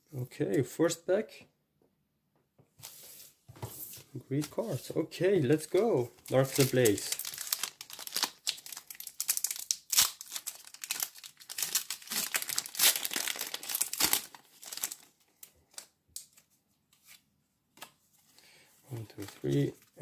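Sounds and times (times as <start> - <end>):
foil wrapper crinkling: 5.8 - 15.8.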